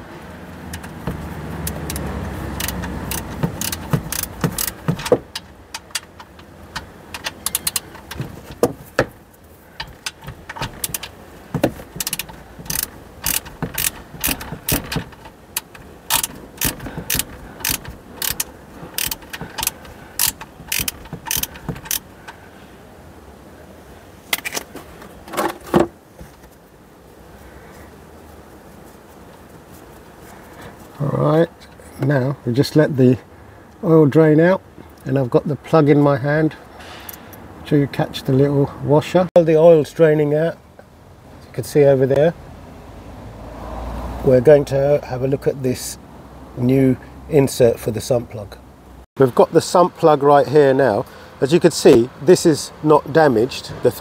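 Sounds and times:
ratchet clicking: 0.5s - 9.2s, 9.8s - 22.4s.

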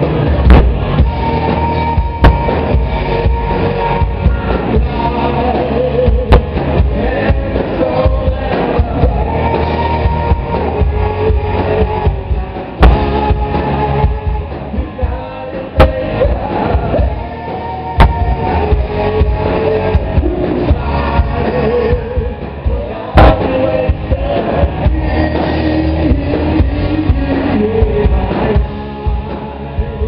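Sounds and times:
live rock band playing: 0.0s - 30.0s.

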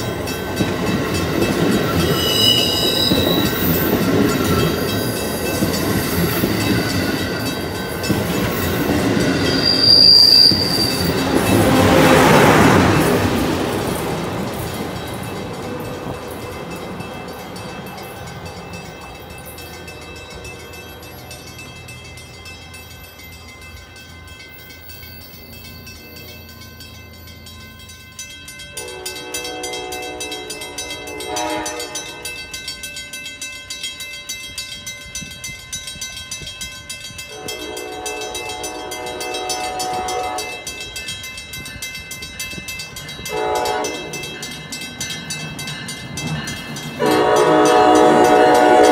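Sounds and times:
train pulling away: 0.0s - 33.0s, 35.4s - 48.9s
crossing bells ringing rapidly: 0.0s - 48.9s
train horn blasts: 28.8s - 32.3s, 37.3s - 40.7s, 43.3s - 44.4s, 47.0s - 48.9s.

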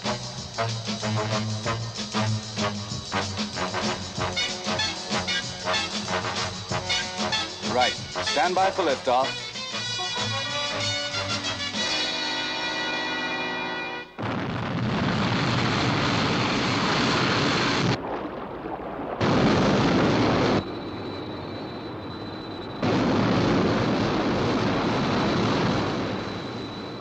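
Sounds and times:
jet rocket roar: 0.0s - 27.0s
thin high whine: 19.7s - 27.0s.

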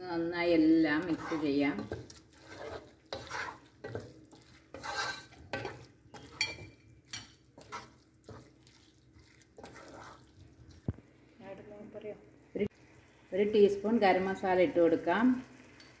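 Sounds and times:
wooden spatula scraping metal pot: 0.7s - 10.8s.

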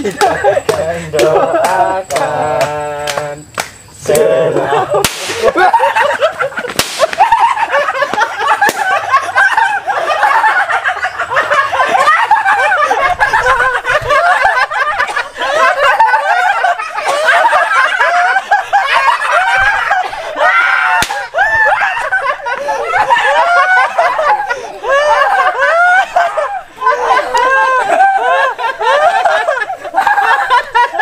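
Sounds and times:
sharp cracks: 5.0s - 5.6s, 6.6s - 9.0s, 20.9s - 21.4s.

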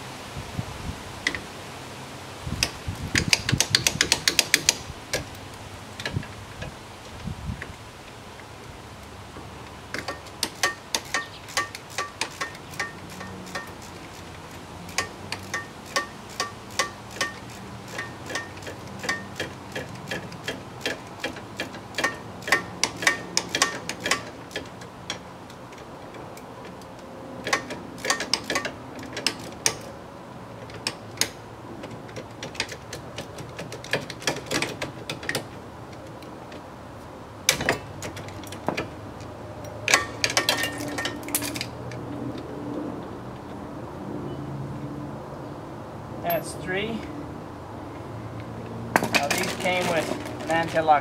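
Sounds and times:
ratchet wrench clicking: 2.6s - 5.3s, 9.9s - 25.2s, 27.4s - 29.9s.

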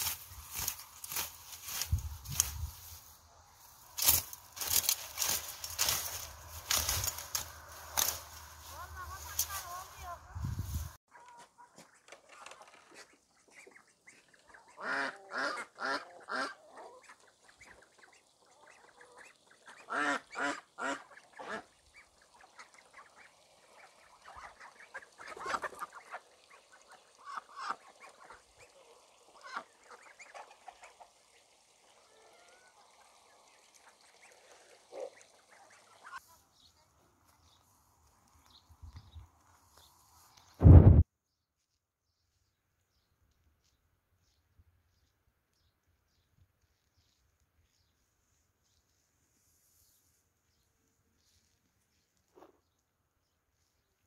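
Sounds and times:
ducks quacking: 4.6s - 37.0s.

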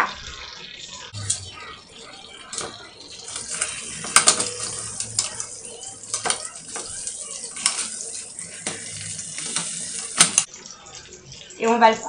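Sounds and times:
metal utensil clinking on glass dish: 3.3s - 10.5s.

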